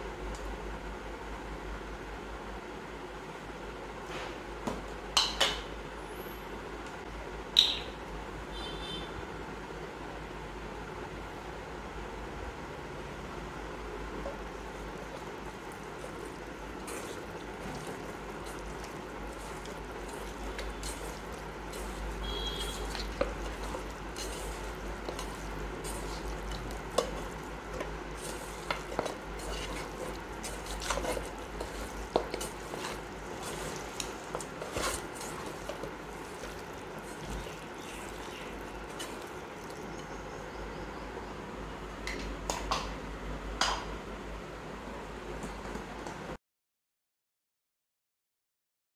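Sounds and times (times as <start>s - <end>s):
steady low hum: 9.6s - 45.4s
wet squelching of hands mixing: 14.0s - 40.6s.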